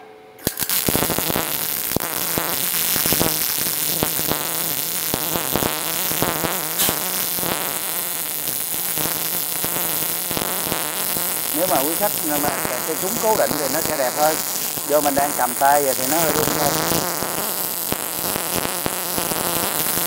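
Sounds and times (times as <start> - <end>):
arc welder crackling: 0.4 - 20.0.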